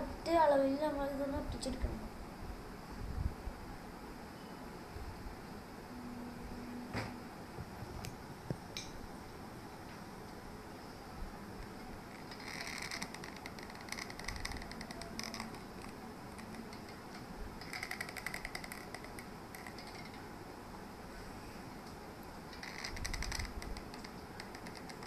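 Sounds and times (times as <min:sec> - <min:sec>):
glue gun creaky clicking: 0:12.2 - 0:17.0, 0:17.6 - 0:20.2, 0:22.5 - 0:25.0.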